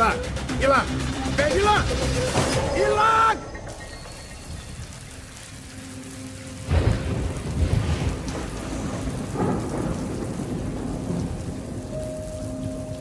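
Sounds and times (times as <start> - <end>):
shower spray hissing: 3.7 - 10.2.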